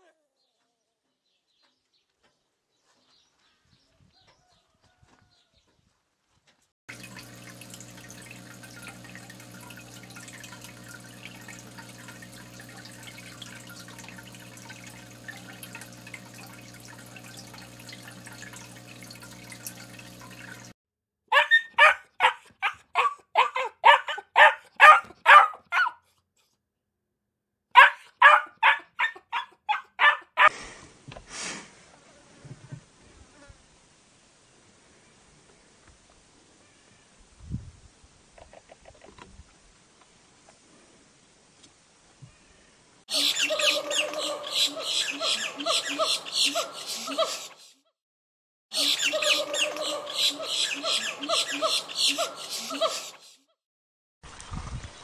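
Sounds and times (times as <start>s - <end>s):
aquarium air pump hum: 6.9s - 20.7s
bubbling water: 6.9s - 20.7s
puppies yapping: 21.3s - 26.0s, 27.8s - 30.5s.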